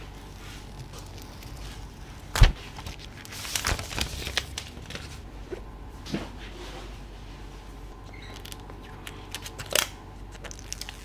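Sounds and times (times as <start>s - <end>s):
plastic shrink-wrap crinkling and tearing: 0.0s - 5.2s, 8.3s - 11.0s.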